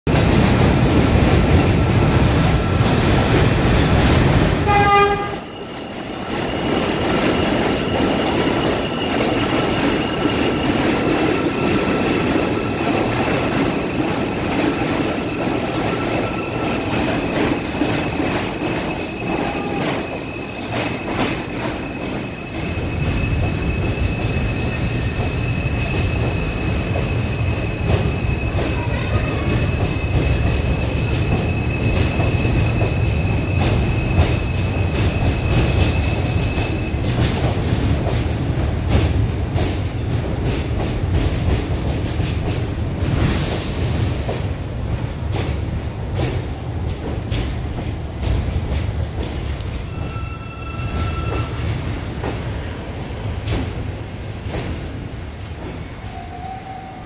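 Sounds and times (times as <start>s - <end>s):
train wheels rumbling on rails: 0.1s - 57.0s
train horn blast: 4.6s - 5.6s
high-pitched wheel squeal: 49.8s - 51.8s, 55.6s - 57.0s.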